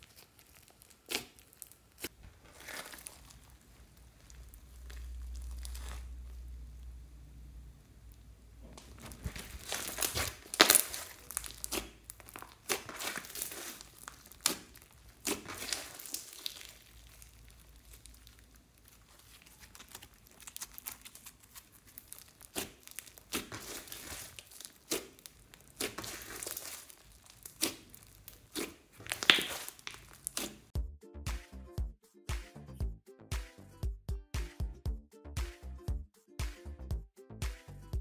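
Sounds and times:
hands squishing sticky slime: 0.0 - 6.6, 8.1 - 30.8.

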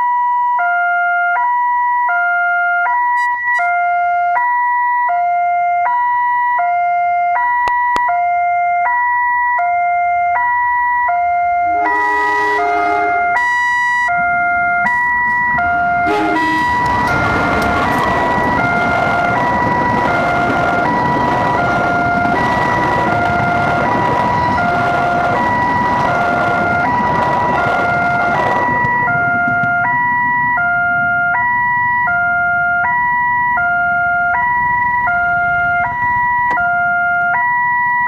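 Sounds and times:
level crossing two-tone alarm: 0.0 - 38.0
passenger train rushing past: 11.7 - 13.4, 14.4 - 31.9.

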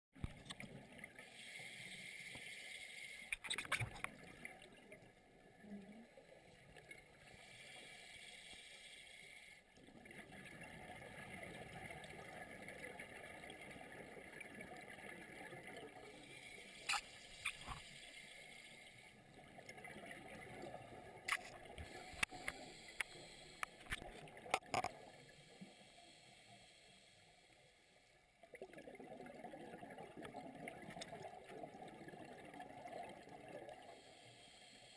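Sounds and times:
underwater hiss: 1.2 - 3.4, 7.2 - 9.6, 16.0 - 19.3, 21.8 - 23.9, 25.1 - 28.1, 33.8 - 34.9.

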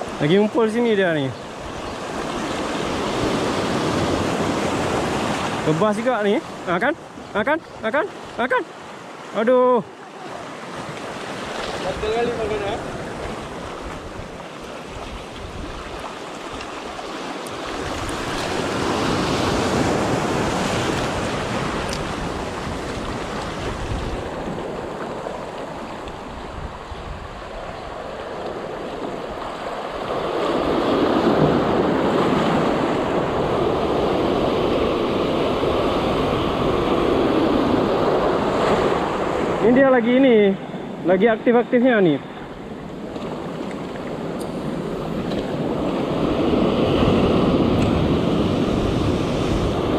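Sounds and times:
waves breaking over rocks: 0.0 - 49.9.

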